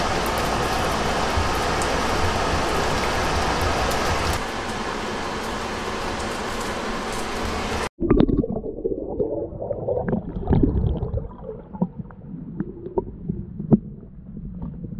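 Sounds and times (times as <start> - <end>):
muffled underwater water rumbling: 8.0 - 14.9.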